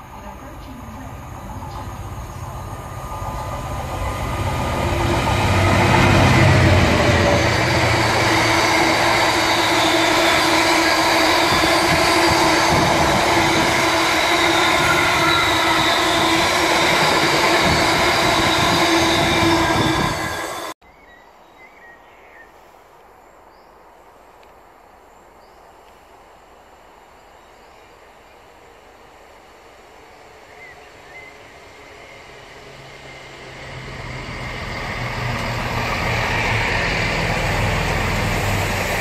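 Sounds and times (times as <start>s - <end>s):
locomotive engine rumble: 0.0s - 20.8s, 30.7s - 39.0s
wheel whine: 0.0s - 20.8s, 28.3s - 39.0s
wheels on rails: 0.0s - 20.8s, 30.2s - 39.0s.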